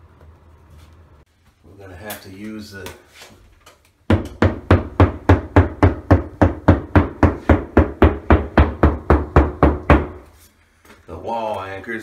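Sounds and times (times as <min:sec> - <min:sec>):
hammer tapping drywall: 0:04.1 - 0:10.2.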